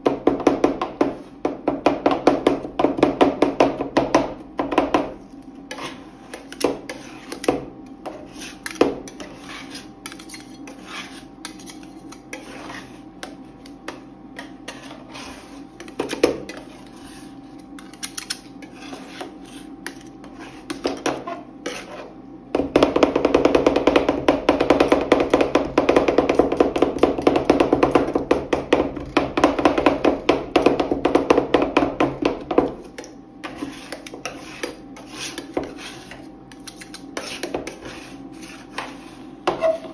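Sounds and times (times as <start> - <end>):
metal spatulas chopping on steel: 8.4 - 14.8.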